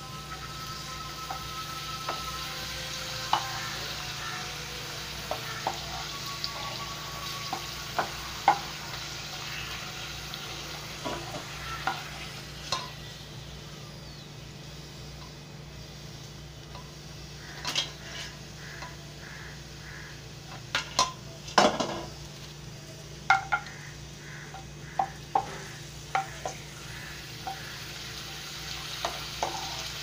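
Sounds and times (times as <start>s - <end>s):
food sizzling in hot oil: 0.0s - 30.0s
spatula clicking and tapping pan: 3.2s - 4.3s, 7.4s - 9.1s, 18.6s - 19.4s, 23.3s - 28.2s, 28.8s - 30.0s.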